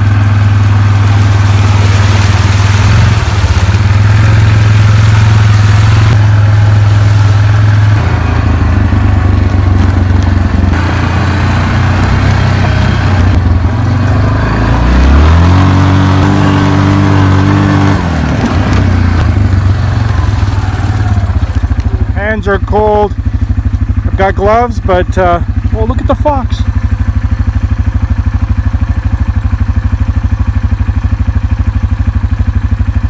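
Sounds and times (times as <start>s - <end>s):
splashing through mud: 0.0s - 22.2s
motorbike engine running: 0.0s - 33.0s.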